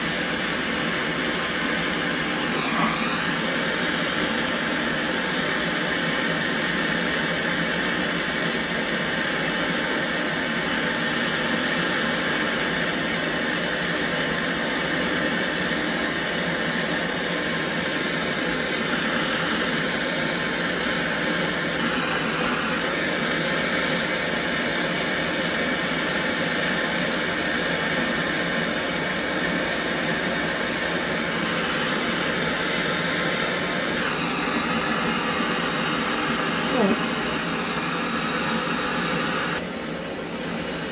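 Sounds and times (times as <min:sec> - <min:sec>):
gas torch hissing: 0:00.0 - 0:39.8.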